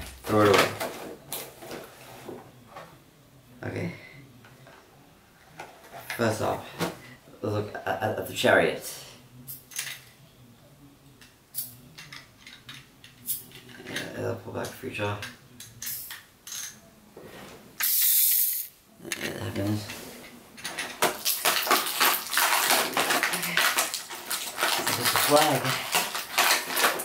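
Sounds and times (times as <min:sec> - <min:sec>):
plastic packaging rustling: 0:19.6 - 0:27.0.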